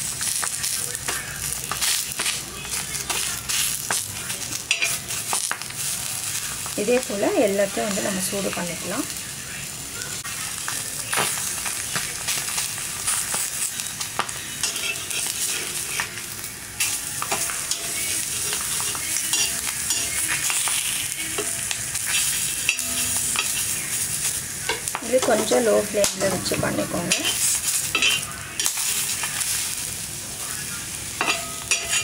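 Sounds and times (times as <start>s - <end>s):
meat sizzling on a griddle: 0.0s - 32.0s
metal spatula clicks and scrapes: 4.7s - 5.6s, 14.2s - 16.2s, 16.8s - 23.7s, 27.1s - 29.3s, 31.2s - 32.0s.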